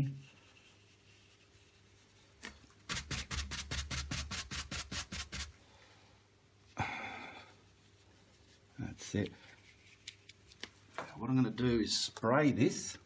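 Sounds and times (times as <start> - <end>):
brush scrubbing on canvas: 0.2 - 5.5, 7.6 - 10.6.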